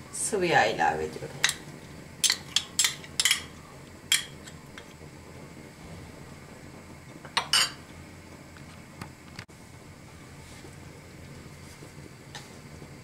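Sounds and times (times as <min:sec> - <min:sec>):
kitchenware clinking on counter: 0:02.2 - 0:03.5.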